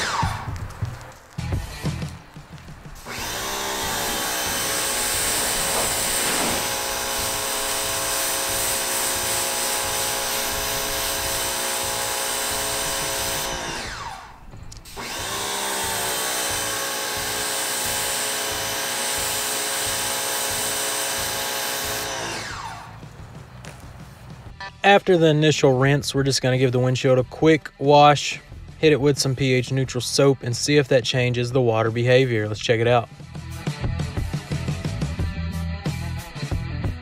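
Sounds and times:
water spray hissing: 0.0s - 13.6s
pressure washer motor: 3.0s - 23.7s.

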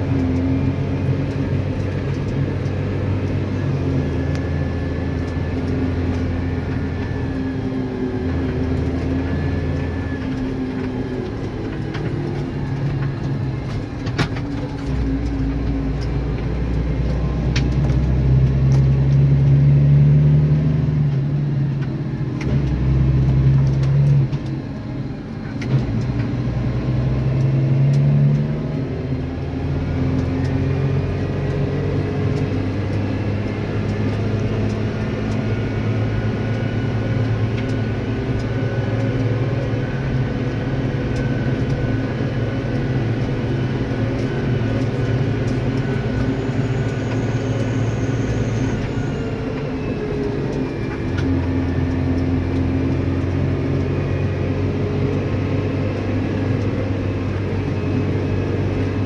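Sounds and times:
tractor engine drone: 0.0s - 59.0s
cab rattles and clicks: 8.1s - 19.6s.

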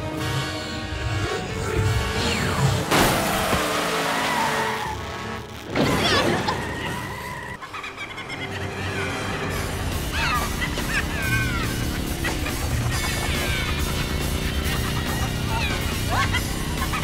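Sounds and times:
background score music: 0.0s - 17.0s
tyres skidding: 1.6s - 17.0s
car engine surging: 8.4s - 17.0s.

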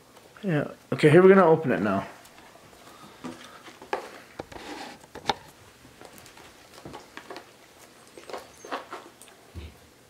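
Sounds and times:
scratchy scraping: 4.4s - 5.0s.

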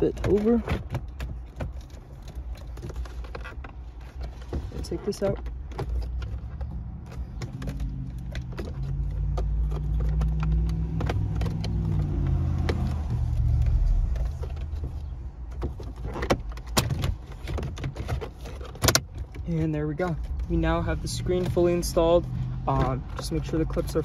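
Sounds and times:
plastic trim clicks and knocks: 0.1s - 19.4s
low steady rumble: 1.3s - 16.1s.

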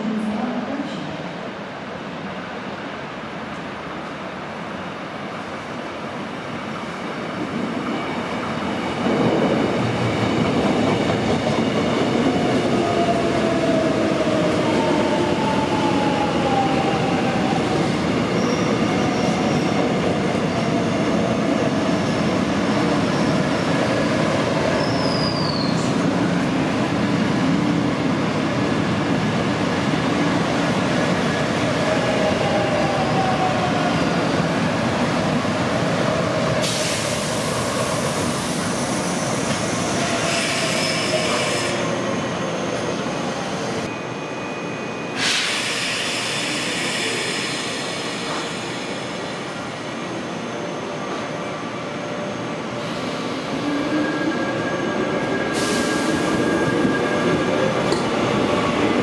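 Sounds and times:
train wheels rumbling on rails: 7.4s - 43.9s, 45.2s - 49.6s
high wheel squeals: 24.8s - 25.9s.

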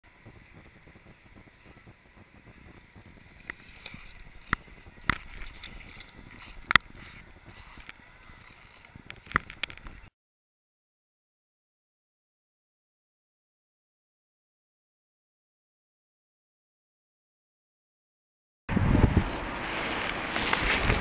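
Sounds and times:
wind on microphone: 0.0s - 10.1s, 18.7s - 21.0s
skis sliding over snow: 0.1s - 10.1s, 19.1s - 21.0s.

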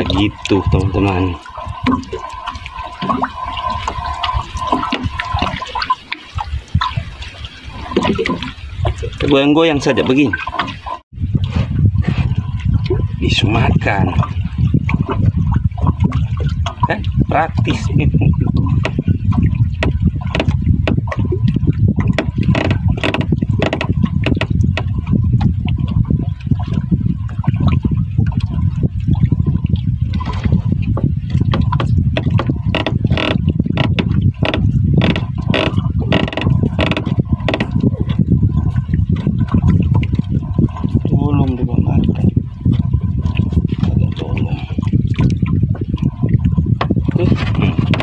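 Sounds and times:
water lapping against boat hull: 0.0s - 48.0s
steady low rumble: 10.9s - 48.0s
small knocks: 22.1s - 24.9s.

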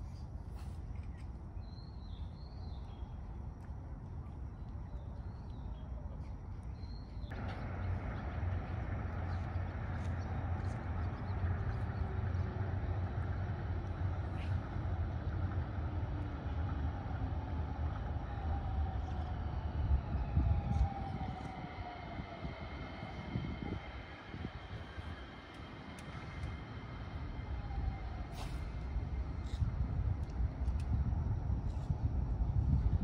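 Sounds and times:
monorail train rumbling: 6.8s - 33.0s.

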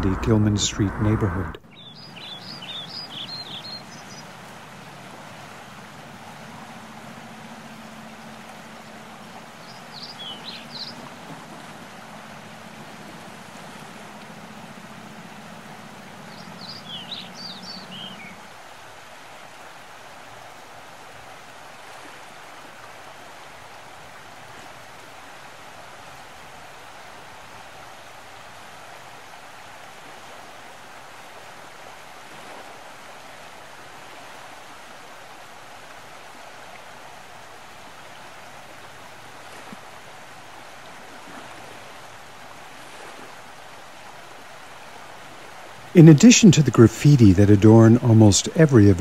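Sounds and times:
faint low hum: 0.0s - 2.7s
outdoor noise: 0.0s - 20.6s, 32.3s - 49.0s
high bird chirps: 16.3s - 18.4s.

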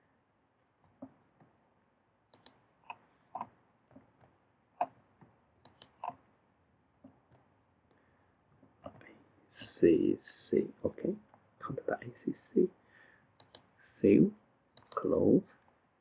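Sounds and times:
mouse and keyboard clicks: 2.3s - 3.5s, 5.6s - 6.1s, 13.4s - 13.7s, 14.8s - 15.1s.

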